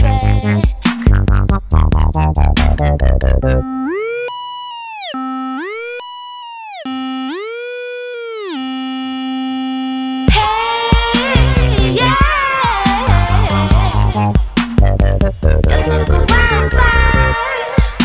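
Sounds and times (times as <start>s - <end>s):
electronic dance music: 0.0s - 18.0s
sliding synthesizer tone: 2.6s - 10.3s.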